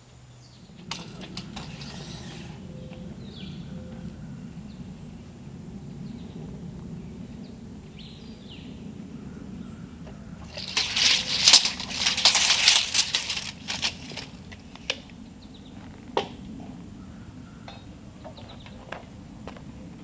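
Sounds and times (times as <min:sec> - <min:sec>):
tools scraping and rattling on board: 0:00.8 - 0:02.6, 0:10.4 - 0:15.0
sharp clicks: 0:10.5 - 0:15.0.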